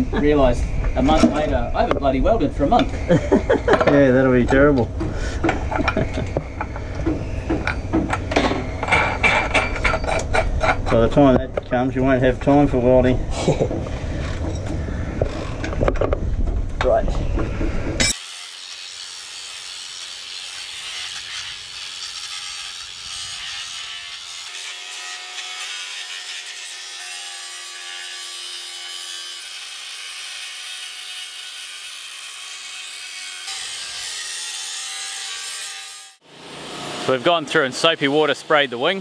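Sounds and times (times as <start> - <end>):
angle grinder grinding steel: 18.0 - 39.0.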